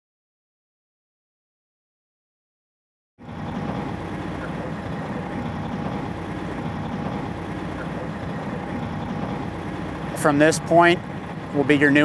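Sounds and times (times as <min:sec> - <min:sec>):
road traffic noise: 0:03.2 - 0:12.0.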